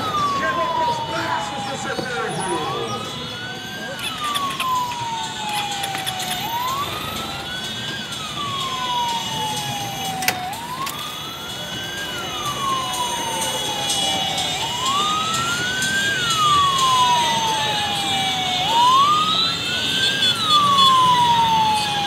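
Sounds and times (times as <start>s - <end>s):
emergency siren wailing: 0.0s - 22.0s
street traffic noise: 0.0s - 22.0s.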